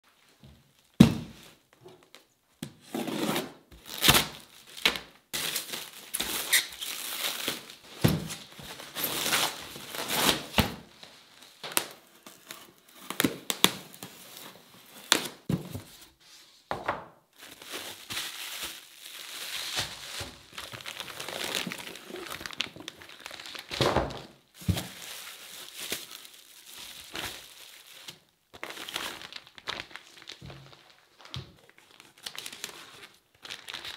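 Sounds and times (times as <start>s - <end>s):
plastic packaging crinkling: 3.8s - 10.5s, 17.4s - 33.9s.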